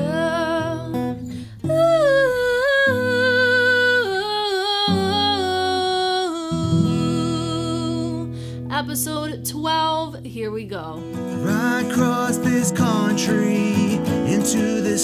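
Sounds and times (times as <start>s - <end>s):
strummed acoustic guitar: 0.0s - 10.0s, 11.0s - 15.0s
woman singing wordless melody: 0.0s - 11.0s.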